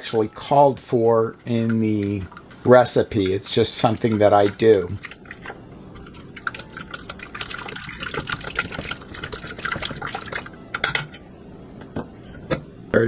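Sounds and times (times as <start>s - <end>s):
liquid swishing and lapping: 1.7s - 10.7s.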